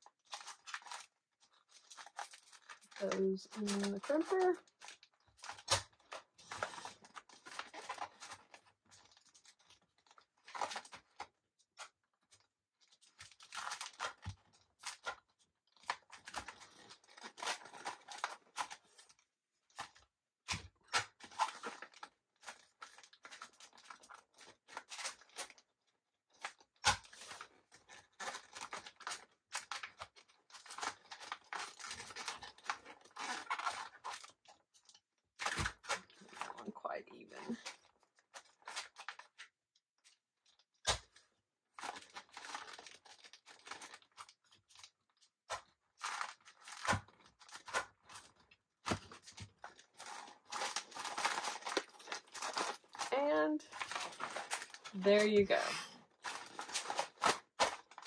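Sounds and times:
foil bag crinkling: 0:00.0 - 0:20.0, 0:21.0 - 0:25.6, 0:26.3 - 0:39.5, 0:40.4 - 0:58.0.

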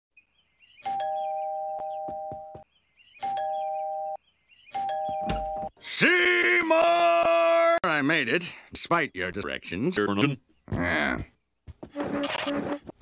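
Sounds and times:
two-tone doorbell chime: 0:00.9 - 0:02.5, 0:03.2 - 0:04.2, 0:04.8 - 0:05.7.

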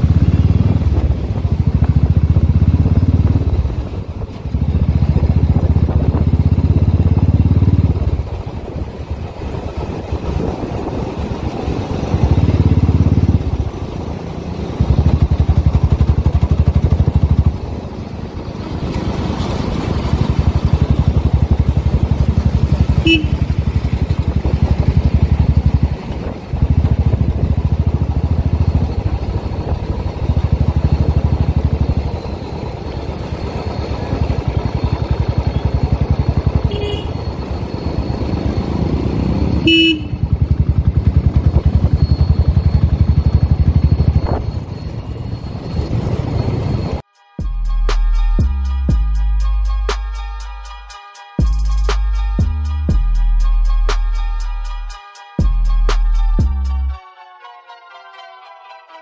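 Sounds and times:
motorcycle engine running: 0:00.0 - 0:47.0.

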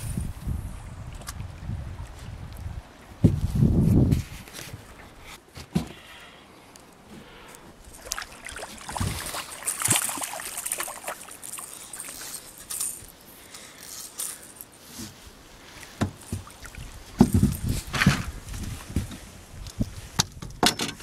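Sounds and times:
fish splashing at water surface: 0:07.9 - 0:13.1.

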